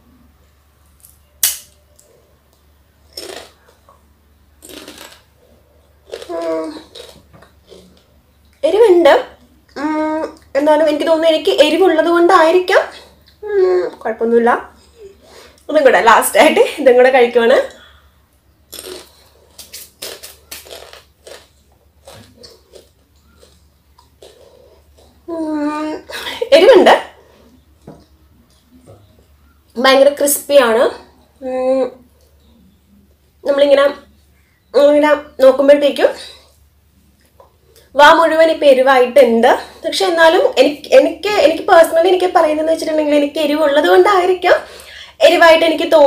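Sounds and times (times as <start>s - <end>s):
teeth crunching crisp chip: 1.4s - 1.7s, 3.1s - 3.6s, 4.6s - 5.3s, 6.0s - 8.0s, 18.7s - 25.1s.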